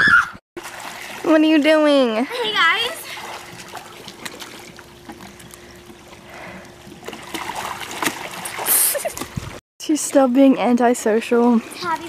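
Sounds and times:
pool water splashing: 0:00.6 - 0:12.0.

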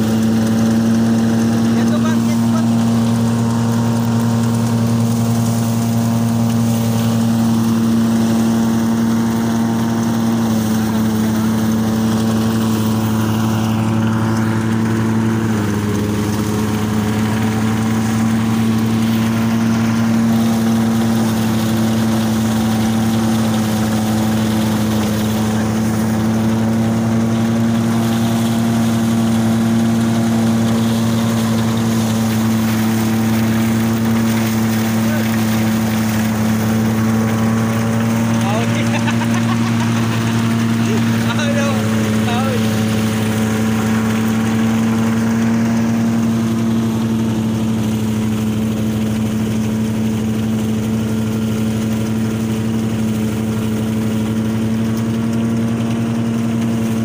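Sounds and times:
small engine running: 0:00.0 - 0:57.0.

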